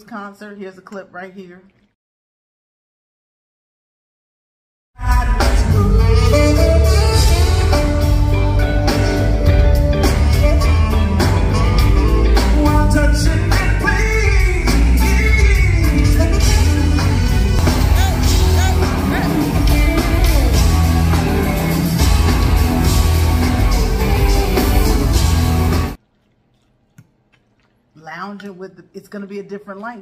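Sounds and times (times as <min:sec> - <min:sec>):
smooth jazz band playing: 0:05.0 - 0:26.0.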